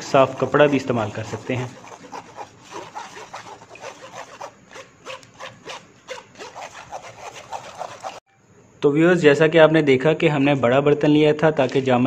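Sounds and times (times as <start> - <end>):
spoon scraping a mesh strainer: 0.0 - 8.2.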